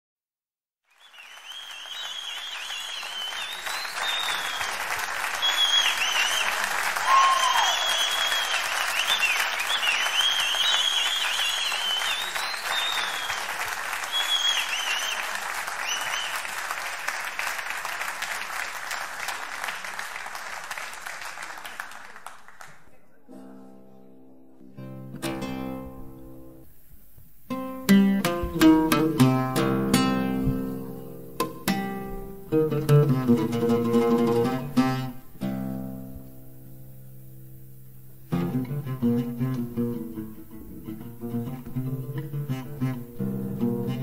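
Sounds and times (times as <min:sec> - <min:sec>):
crowd applauding: 0:00.9 - 0:23.0
shrill wavering cries: 0:02.6 - 0:15.3.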